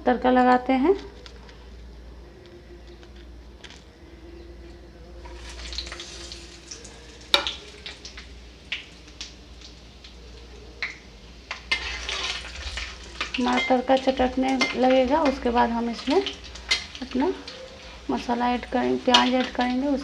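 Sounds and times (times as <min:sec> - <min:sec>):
spices sizzling in hot oil: 0:05.2 - 0:20.0.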